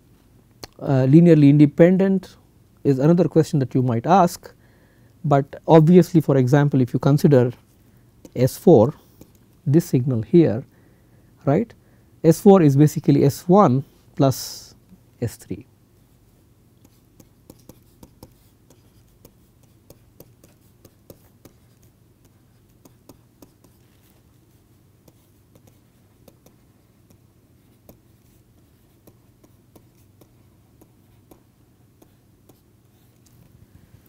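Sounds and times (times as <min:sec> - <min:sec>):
low steady hum: 0:00.0 - 0:34.0
stylus tapping and scratching: 0:16.8 - 0:33.6.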